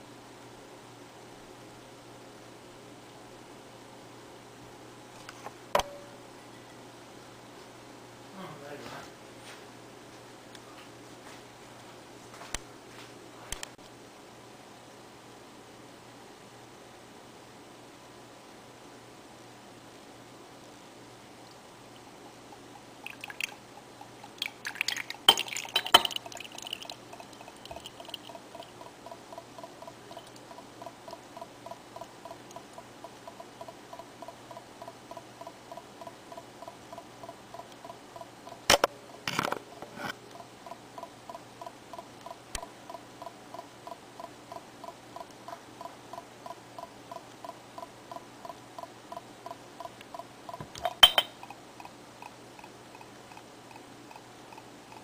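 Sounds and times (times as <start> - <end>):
faint steady ticking: 19.9 - 39.2, 40.1 - 55.0
beer pouring: 22.0 - 31.3, 50.8 - 51.4
glass bottle clinking on bowl: 24.9 - 28.2, 50.8 - 51.4.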